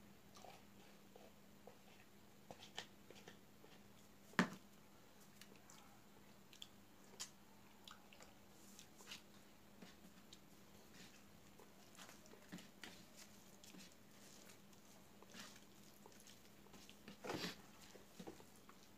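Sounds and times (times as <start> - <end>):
squishing food with fingers: 0.2 - 18.9.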